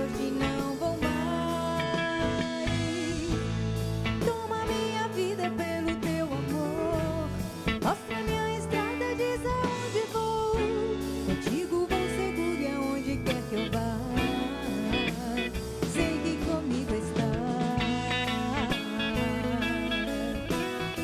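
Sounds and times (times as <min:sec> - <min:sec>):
live pop band playing: 0:00.0 - 0:21.0
woman singing: 0:00.0 - 0:21.0.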